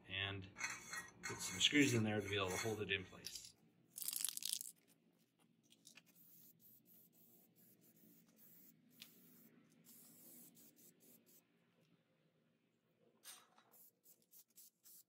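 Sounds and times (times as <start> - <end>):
aerosol spray can hissing: 6.2 - 11.4, 13.8 - 15.0.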